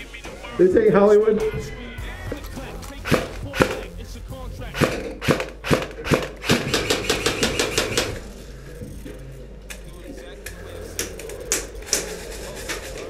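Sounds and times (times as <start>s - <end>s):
airsoft gun shots: 3.0s - 3.8s, 4.8s - 8.2s.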